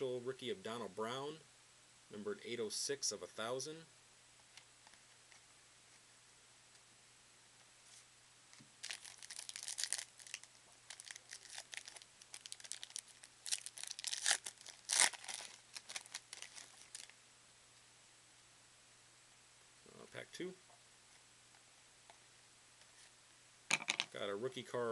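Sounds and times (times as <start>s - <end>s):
foil wrapper tearing and crinkling: 8.8s - 17.1s.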